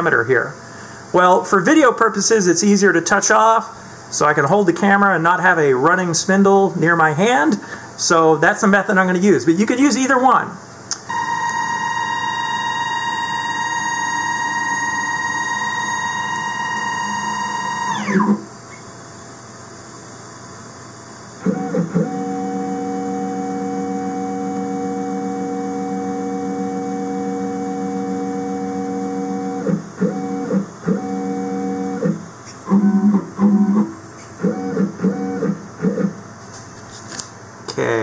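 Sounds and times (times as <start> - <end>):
stepper motors whining: 11.1 - 18.5.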